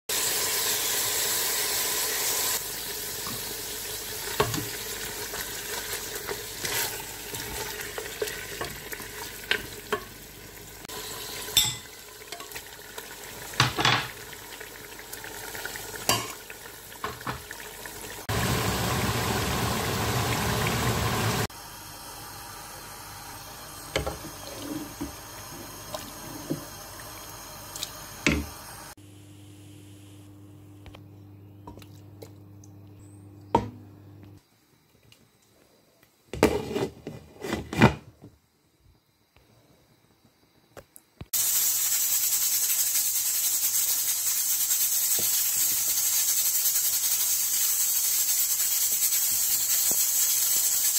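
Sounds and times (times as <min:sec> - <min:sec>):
meat sizzling in a pot: 0:00.1 - 0:30.0, 0:41.3 - 0:50.9.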